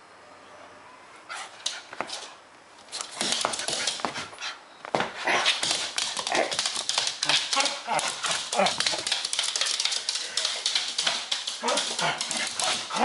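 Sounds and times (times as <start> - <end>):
dog making excited play noises: 5.2 - 13.0.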